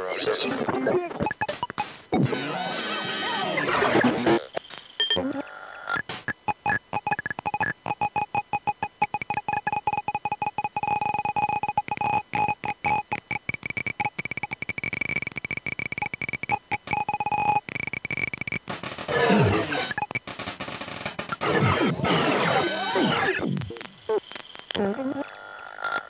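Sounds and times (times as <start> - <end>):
glitchy electronic music: 12.4 - 24.0.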